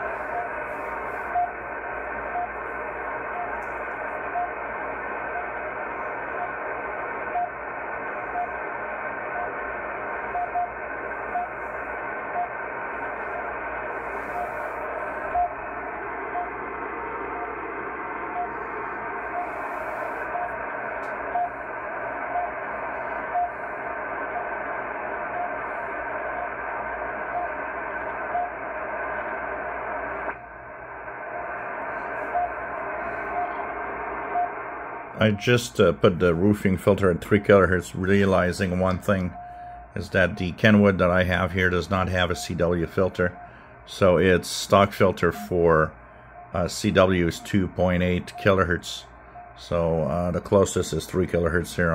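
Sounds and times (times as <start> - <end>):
shortwave radio hiss: 0.0 - 51.9
click: 3.5 - 3.8
short radio beeps: 35.2 - 51.0.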